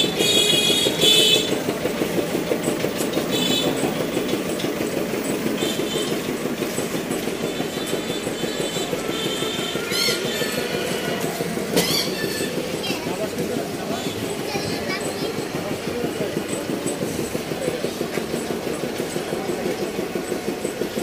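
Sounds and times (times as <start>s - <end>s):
crowd noise: 0.0s - 21.0s
rapid irregular rattle: 0.0s - 21.0s
traffic rumble: 0.0s - 21.0s.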